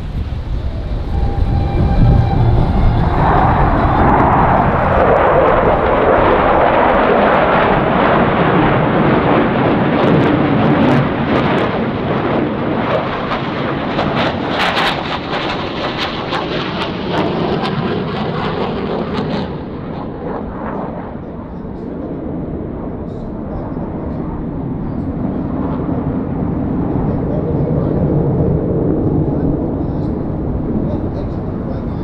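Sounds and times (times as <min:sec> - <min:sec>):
jet roar with crackling: 0:00.0 - 0:32.0.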